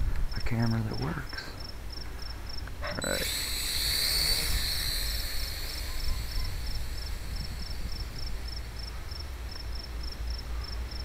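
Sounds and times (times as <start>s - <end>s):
faint high chirp: 3.0s - 9.8s
wind buffeting microphone: 3.1s - 10.4s.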